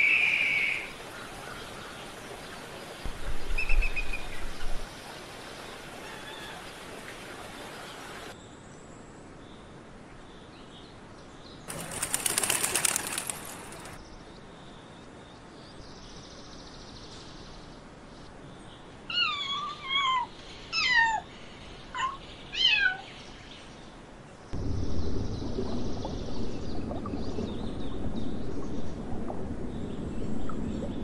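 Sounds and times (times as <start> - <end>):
pigeon wings clattering: 11.7 - 14.0.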